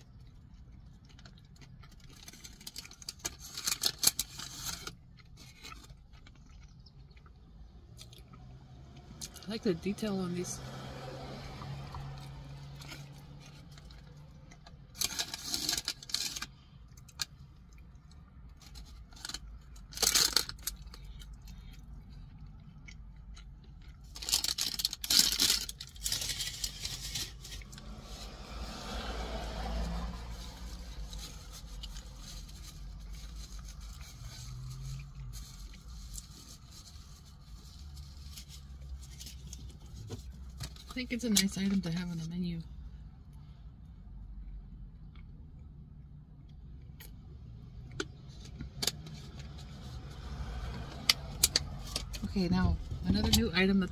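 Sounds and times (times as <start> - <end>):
paper bag crinkling and rustling: 24.1 - 28.3.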